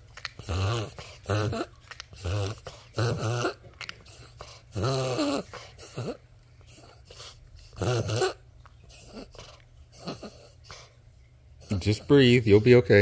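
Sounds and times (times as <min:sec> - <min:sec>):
small dog wheezing breaths: 0:04.0 - 0:11.0.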